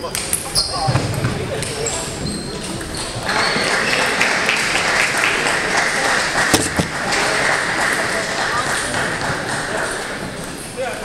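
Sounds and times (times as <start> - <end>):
crowd applause: 2.6 - 10.9
sharp knock: 6.5 - 7.0.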